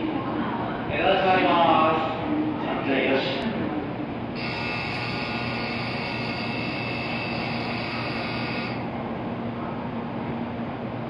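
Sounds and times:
train humming: 0:03.4 - 0:11.0
high electronic ringing signal: 0:04.4 - 0:08.9.

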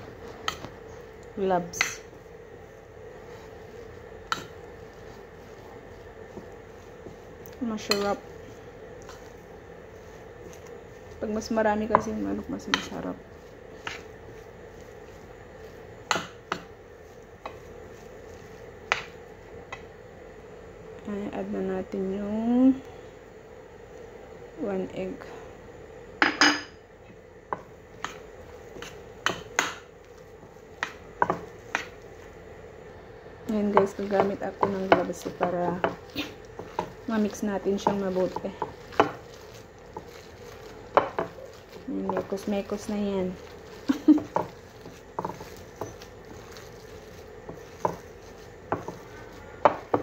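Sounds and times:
wet food mixture squelching: 0:00.0 - 0:19.2, 0:33.4 - 0:50.0
low steady background noise: 0:00.0 - 0:50.0.

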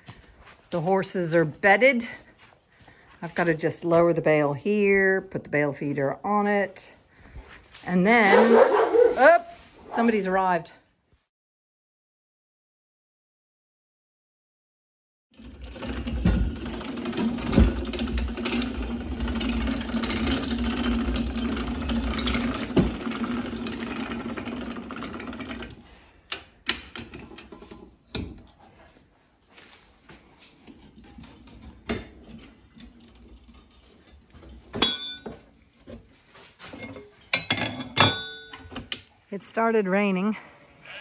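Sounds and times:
metal knocks and clinks: 0:30.6 - 0:35.6, 0:36.7 - 0:39.0.

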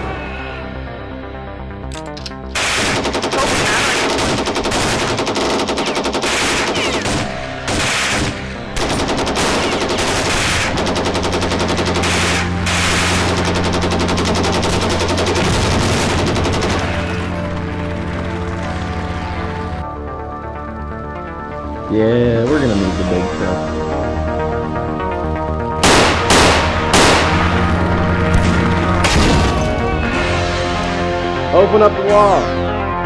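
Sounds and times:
background music held notes: 0:00.0 - 0:33.0
machine-gun fire sound effects: 0:02.6 - 0:17.6, 0:25.8 - 0:29.6.

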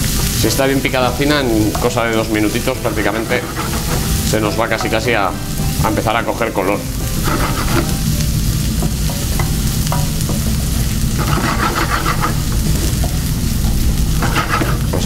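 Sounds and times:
food sizzling in frying pan: 0:00.0 - 0:15.0
spatula scraping pan: 0:01.8 - 0:05.2, 0:07.0 - 0:08.0, 0:09.4 - 0:15.0.

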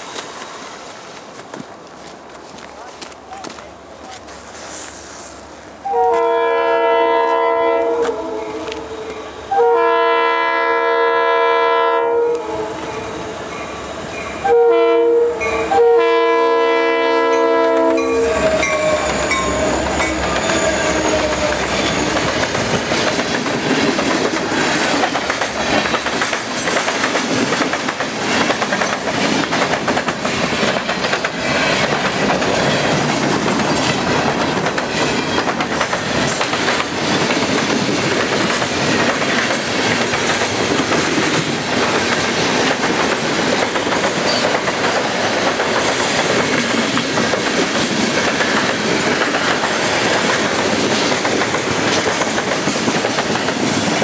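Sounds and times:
train air horn blasts: 0:05.8 - 0:13.4, 0:14.4 - 0:22.2
train wheels clacking on rails: 0:17.4 - 0:54.0.

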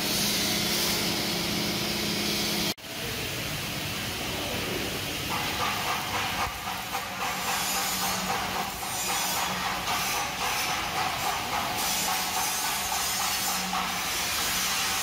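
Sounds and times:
arc welding crackling hiss: 0:04.1 - 0:15.0.

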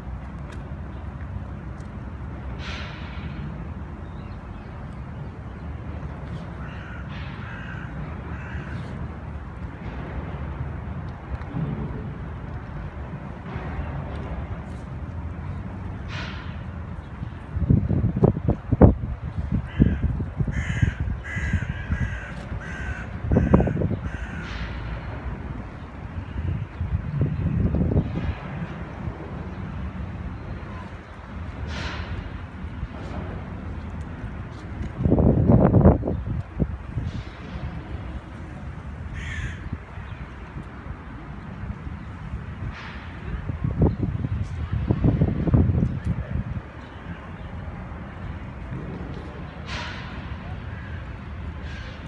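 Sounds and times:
crow cawing: 0:06.6 - 0:08.8, 0:19.7 - 0:24.5, 0:39.1 - 0:39.7.

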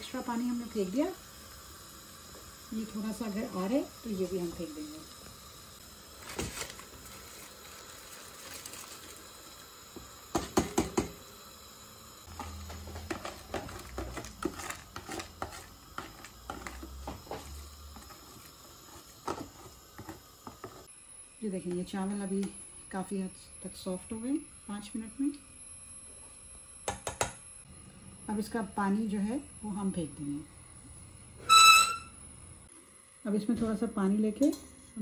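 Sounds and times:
water boiling in a pot: 0:00.0 - 0:35.0
fork scraping a plastic tub: 0:12.4 - 0:18.2.

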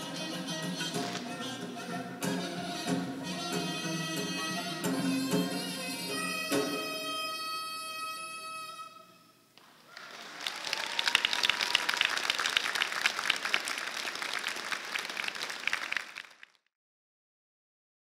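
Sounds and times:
audience applauding: 0:09.6 - 0:16.7.

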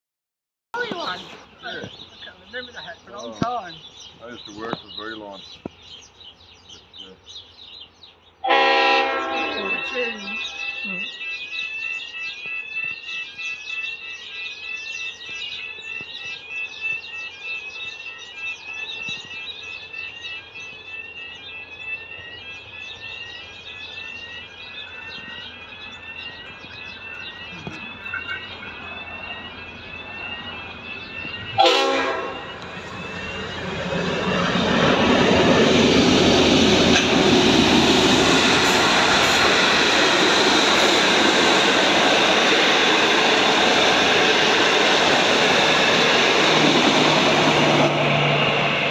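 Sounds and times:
distant locomotive rumble: 0:00.8 - 0:11.3, 0:14.6 - 0:48.9
rising chirping calls: 0:00.8 - 0:48.9
locomotive horn: 0:08.4 - 0:11.1, 0:31.5 - 0:33.2
train wheels rushing on rails: 0:23.8 - 0:48.9.

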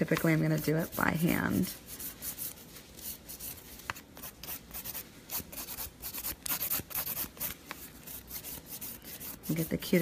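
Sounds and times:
nail file rasping on nail: 0:04.2 - 0:10.0.

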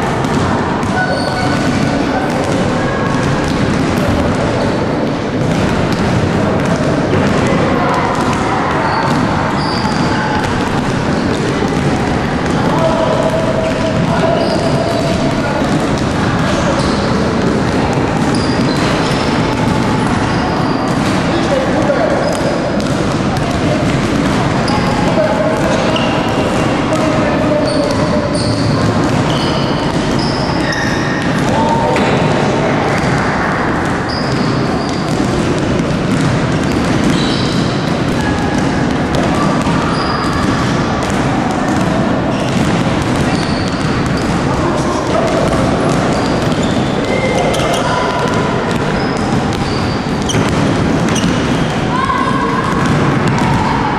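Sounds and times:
basketballs bouncing on wooden floor: 0:00.0 - 0:53.9
children's voices echoing: 0:00.0 - 0:53.9
sneakers squeaking on floor: 0:00.1 - 0:53.8.

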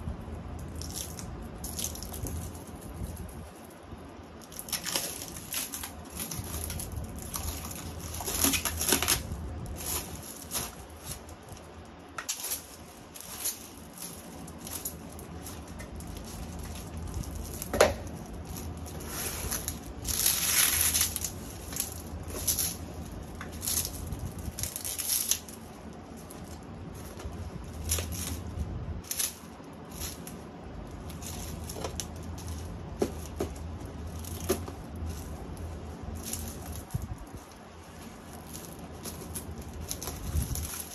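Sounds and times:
plastic bag rustling: 0:00.5 - 0:40.9
cardboard box sliding: 0:19.0 - 0:19.6.

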